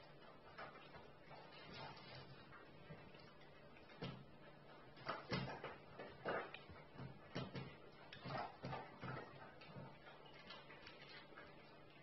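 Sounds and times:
dog eating from metal bowl: 0:00.0 - 0:12.0.

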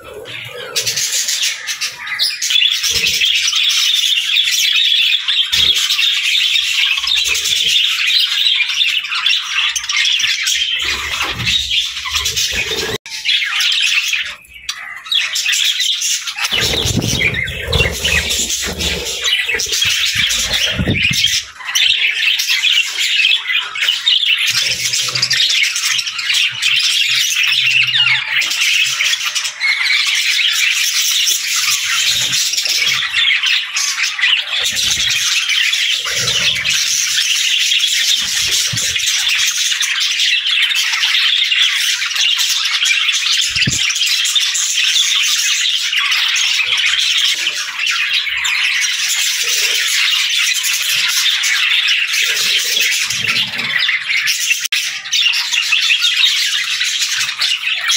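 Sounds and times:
budgerigars chattering: 0:00.0 - 0:57.9.

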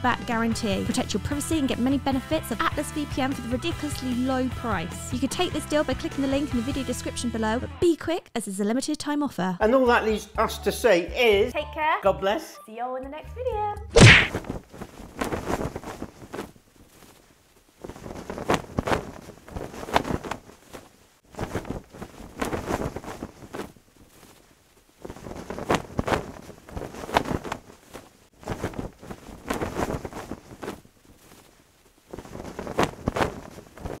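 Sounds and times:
flag flapping in the wind: 0:14.3 - 0:34.0.

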